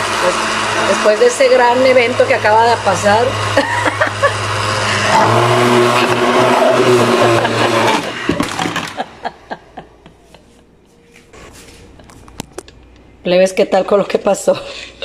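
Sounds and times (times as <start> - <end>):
blender motor running: 0.0 - 9.1.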